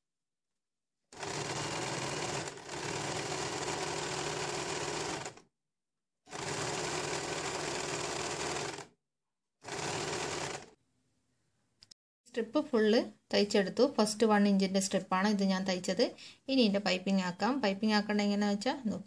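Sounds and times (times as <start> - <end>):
sewing machine stitching: 1.1 - 5.5, 6.3 - 9.0, 9.6 - 10.8.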